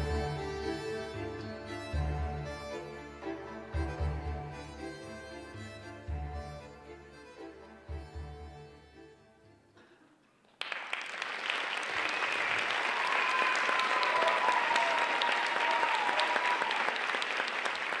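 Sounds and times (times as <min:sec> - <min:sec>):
music: 0:00.0 - 0:09.8
audience applause: 0:10.5 - 0:18.0.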